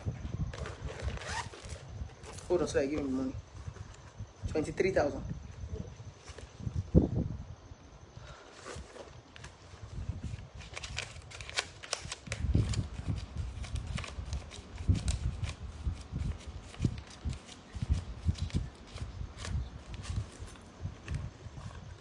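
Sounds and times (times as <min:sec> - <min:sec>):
rustling: 0:00.4 - 0:04.2.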